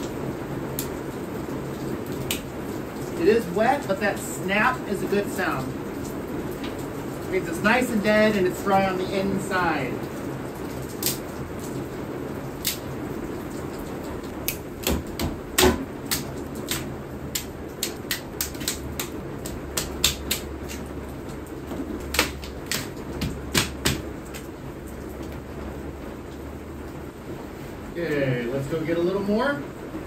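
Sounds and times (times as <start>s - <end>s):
rain hiss: 0.0s - 30.0s
dry sticks snapping: 10.9s - 11.3s, 12.6s - 12.9s, 14.4s - 20.9s, 22.0s - 24.5s.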